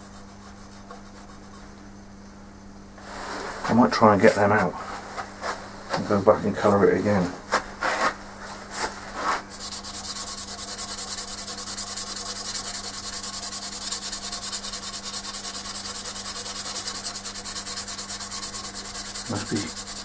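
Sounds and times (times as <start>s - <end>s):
low machine hum: 0.0s - 20.0s
sandpaper hissing on wood: 3.0s - 5.6s, 9.1s - 20.0s.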